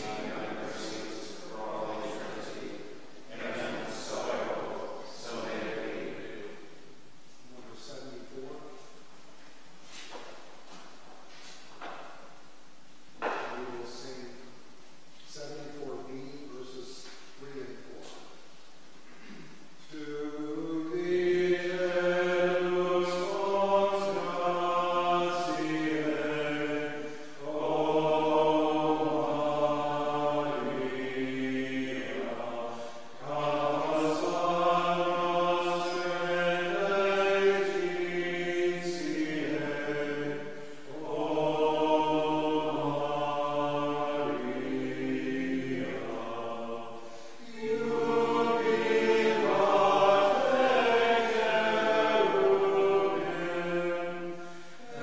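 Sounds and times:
voices chanting in unison: 0:00.0 - 0:06.8, 0:19.2 - 0:55.0.

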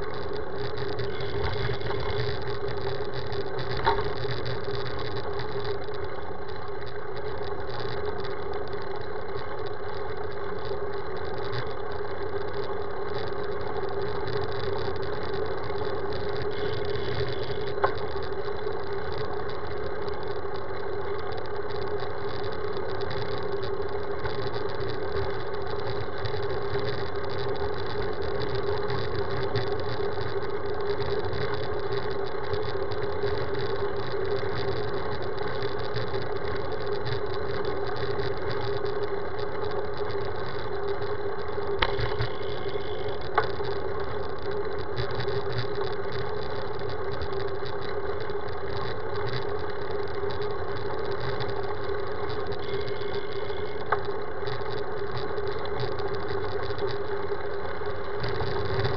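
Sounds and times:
bicycle road rumble: 0:00.0 - 0:58.9.

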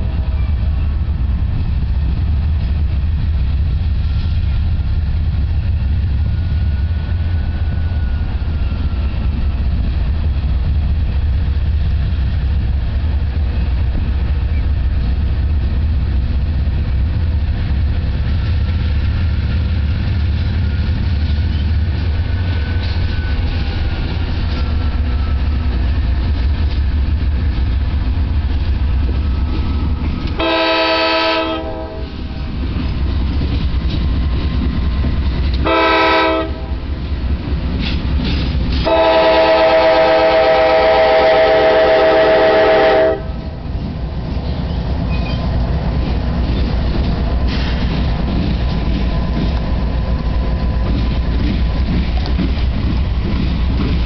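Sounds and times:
diesel locomotives rumbling: 0:00.0 - 0:54.0
train air horn blasts: 0:30.4 - 0:32.2, 0:35.6 - 0:36.8, 0:38.8 - 0:43.4.

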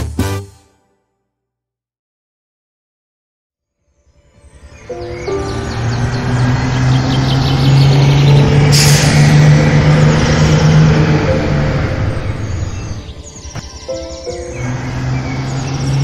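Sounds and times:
heavy vehicle engine running: 0:05.0 - 0:16.0.

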